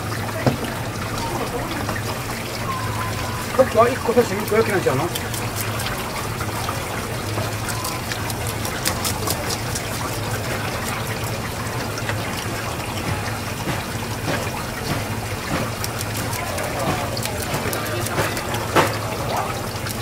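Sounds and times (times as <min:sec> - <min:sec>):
tap water running: 0:00.0 - 0:20.0.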